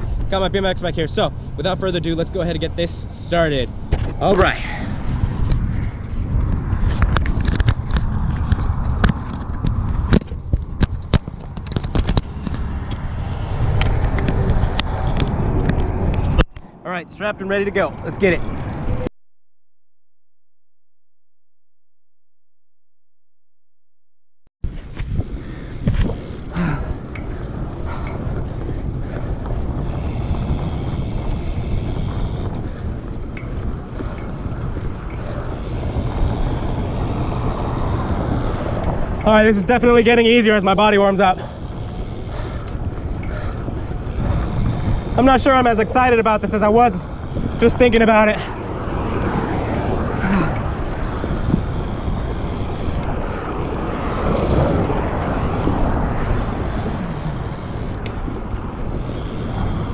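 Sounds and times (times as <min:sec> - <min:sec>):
wind buffeting microphone: 0:00.0 - 0:19.1, 0:24.6 - 0:59.9
faint ticks: 0:26.8 - 0:39.4, 0:41.4 - 0:45.2.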